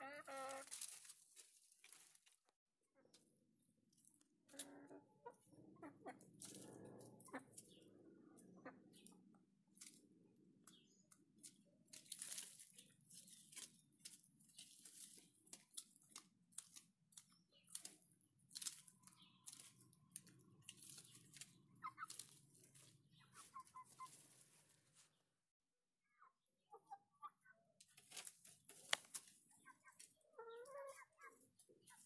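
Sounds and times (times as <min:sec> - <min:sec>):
footsteps in dry leaves: 0:00.3 - 0:02.4, 0:11.9 - 0:15.8, 0:18.5 - 0:25.1, 0:28.0 - 0:30.2.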